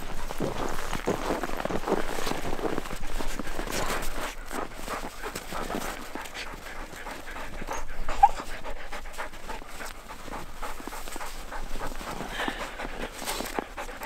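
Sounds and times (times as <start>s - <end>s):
dogs panting: 0.0s - 14.0s
dog whining: 7.6s - 8.6s.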